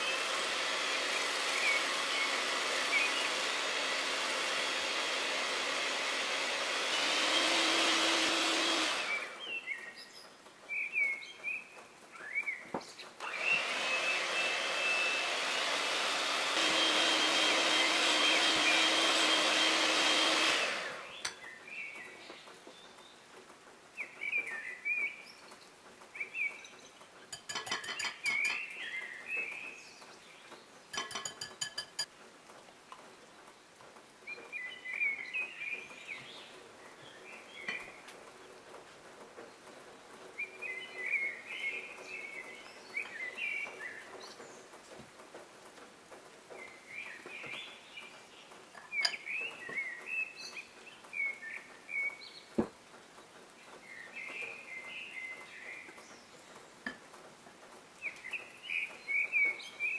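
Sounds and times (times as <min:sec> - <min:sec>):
electric hand mixer running: 0:00.0 - 0:09.6, 0:13.2 - 0:21.4
birds chirping: 0:00.0 - 0:23.3, 0:46.5 - 0:57.1
whisk clicking against glass bowl: 0:27.3 - 0:28.6, 0:31.0 - 0:32.1.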